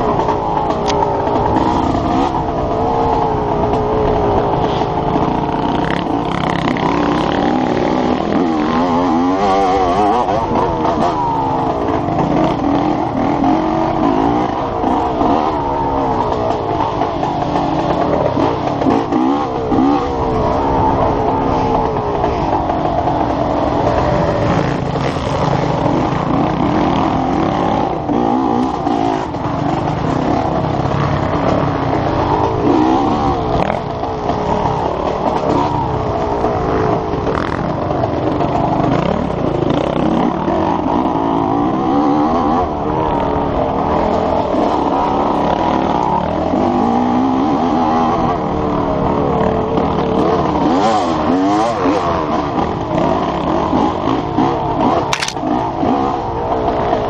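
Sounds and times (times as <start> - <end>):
dirt bike engine revving: 0.0 - 48.3.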